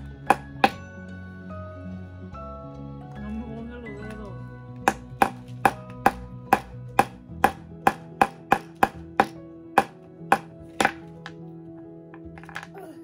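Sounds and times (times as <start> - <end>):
hammer tapping: 0.0 - 0.8, 4.8 - 11.4
background music with held chords: 0.0 - 13.0.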